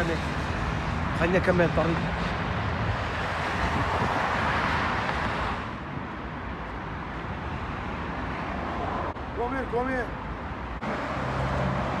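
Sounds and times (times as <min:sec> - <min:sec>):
steady background traffic: 0:00.0 - 0:12.0
vehicle passing: 0:10.7 - 0:12.0.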